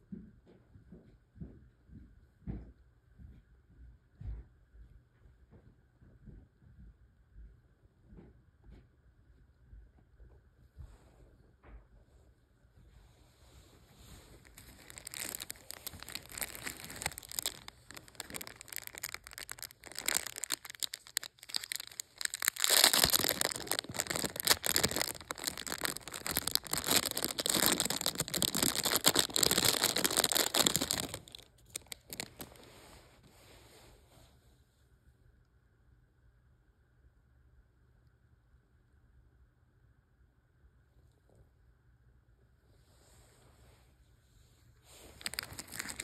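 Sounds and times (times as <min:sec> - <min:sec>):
plastic wrap crinkling: 0:14.2 - 0:32.8, 0:45.0 - 0:46.0.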